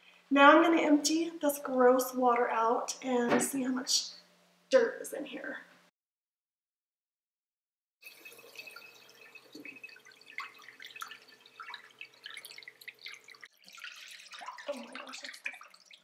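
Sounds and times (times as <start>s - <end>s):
dirty water splashing into a sink: 8.0s - 16.0s.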